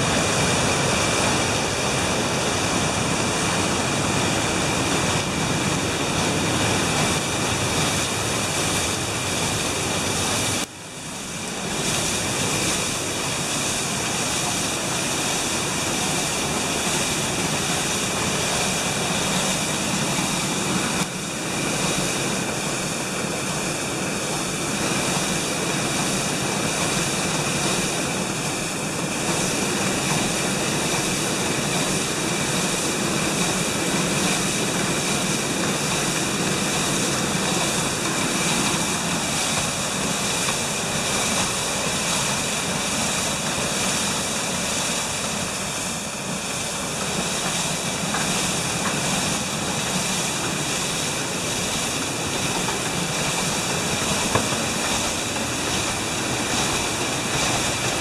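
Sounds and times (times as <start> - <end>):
water rushing and splashing: 0.0 - 58.0.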